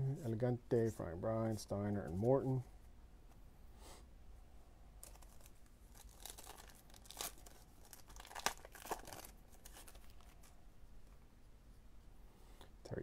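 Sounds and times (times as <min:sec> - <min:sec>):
wrapper tearing and crinkling: 0:05.0 - 0:10.6.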